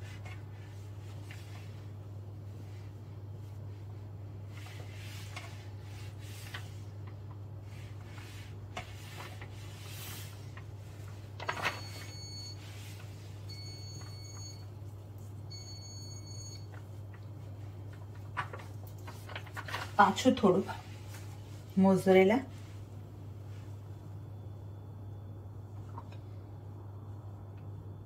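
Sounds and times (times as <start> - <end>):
soft rustles of hands: 0.0 - 15.4, 20.6 - 21.8
steady low hum: 0.0 - 28.0.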